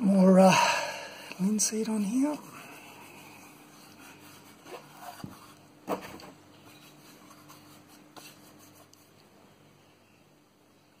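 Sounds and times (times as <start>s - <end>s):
low steady hum: 0.0s - 11.0s
hand rubbing wood: 1.4s - 9.2s.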